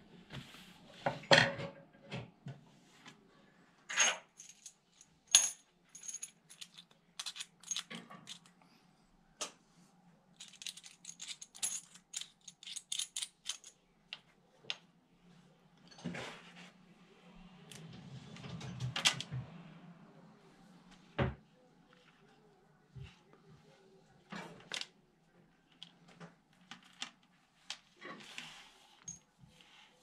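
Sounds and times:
small metal parts clinking: 4.4s - 8.5s, 10.4s - 13.8s.

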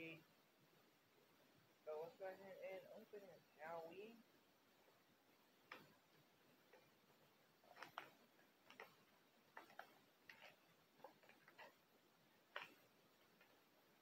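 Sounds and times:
plastic packaging crinkling: 7.6s - 11.8s.

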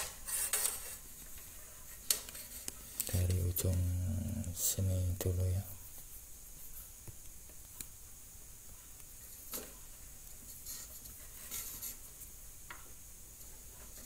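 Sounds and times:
faint taps and handling noise: 5.3s - 8.0s, 8.7s - 14.0s.

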